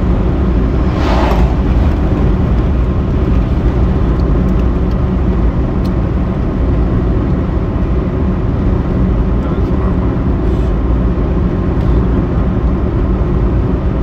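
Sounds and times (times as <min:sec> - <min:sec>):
brief whoosh: 0:00.0 - 0:04.0
car road and wind noise: 0:00.0 - 0:14.0.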